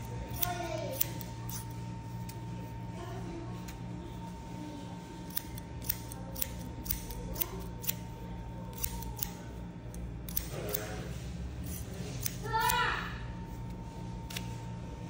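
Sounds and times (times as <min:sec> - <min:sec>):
shears snipping hair: 0:00.0 - 0:02.4, 0:05.2 - 0:08.1, 0:08.7 - 0:12.9, 0:13.6 - 0:14.6.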